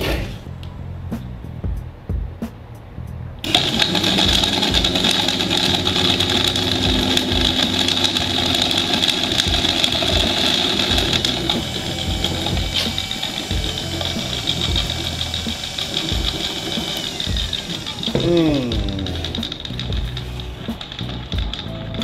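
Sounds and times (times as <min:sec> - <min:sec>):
electric fan buzzing whir: 0:03.4 - 0:22.0.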